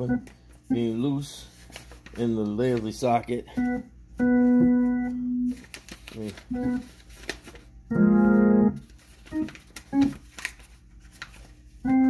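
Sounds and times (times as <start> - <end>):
organ chord and notes: 0.0 - 1.3, 3.5 - 5.6, 6.5 - 6.9, 7.9 - 10.1.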